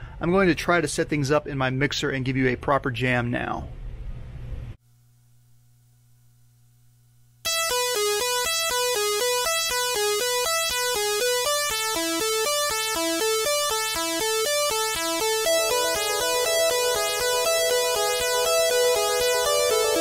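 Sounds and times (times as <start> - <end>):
chiptune synthesizer notes: 7.5 - 20.0
held synthesizer chord: 7.5 - 20.0.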